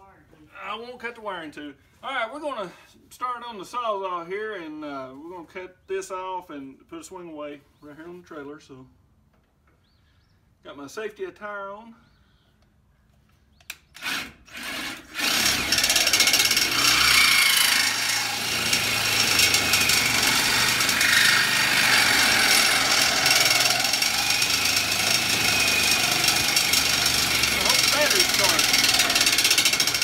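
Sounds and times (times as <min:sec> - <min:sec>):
reciprocating saw cutting metal: 0:14.0 - 0:30.0.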